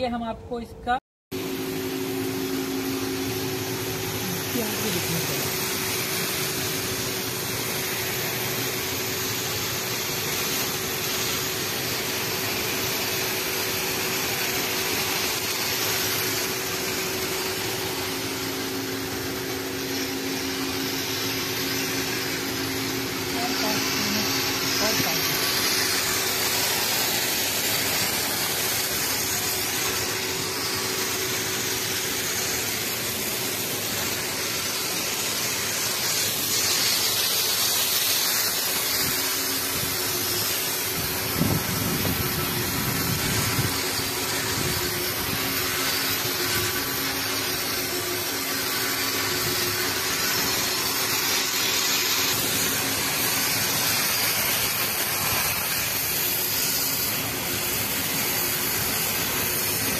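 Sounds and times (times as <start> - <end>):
low motor hum: 0.0 - 9.3
water spray hissing: 1.3 - 59.9.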